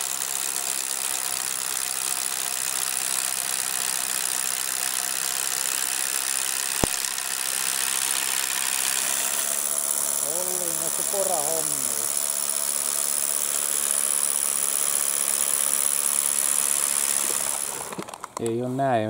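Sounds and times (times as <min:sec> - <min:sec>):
hammer drill boring into concrete: 0:00.0 - 0:18.7
short sharp click: 0:06.8 - 0:07.0.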